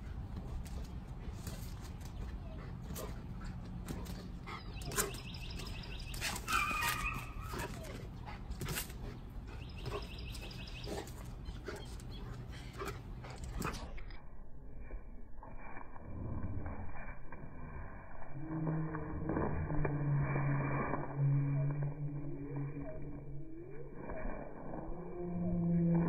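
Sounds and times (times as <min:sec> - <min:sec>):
low steady hum: 0:00.0 - 0:26.0
dog whining: 0:06.4 - 0:08.1.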